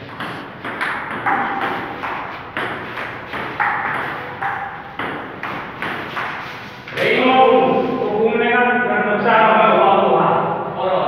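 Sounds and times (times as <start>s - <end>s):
ping pong ball hits: 0.0s - 7.1s.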